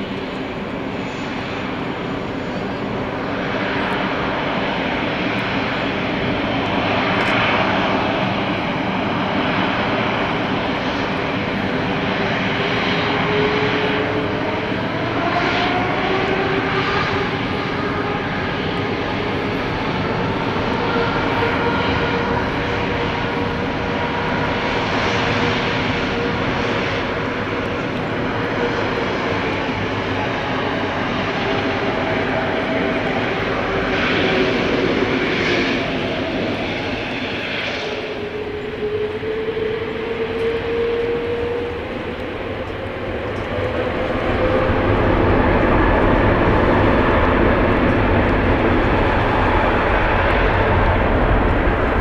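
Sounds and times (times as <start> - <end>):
jet engines roaring and whining: 0.0 - 52.0.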